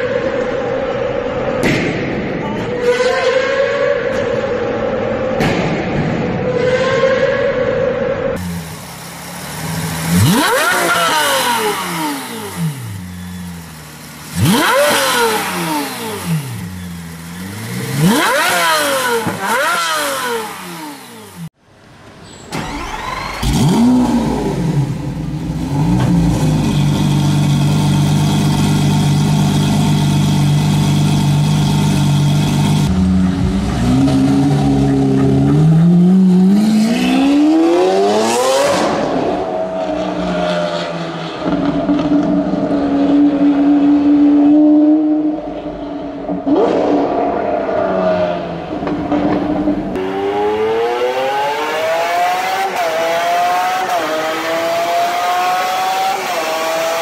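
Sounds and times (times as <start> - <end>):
sports car engine idling: 8.4 - 10.5, 12.4 - 14.6, 24.4 - 35.7
sports car engine revving: 8.4 - 21.6, 22.7 - 57.0
car pulling away: 22.4 - 47.1.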